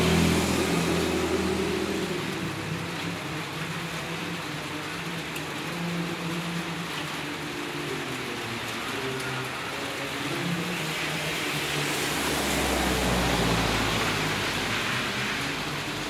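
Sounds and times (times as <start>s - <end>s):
van engine passing: 0.0s - 5.3s, 9.5s - 16.0s
rain on wet street: 0.0s - 16.0s
tyres hissing on wet road: 0.0s - 16.0s.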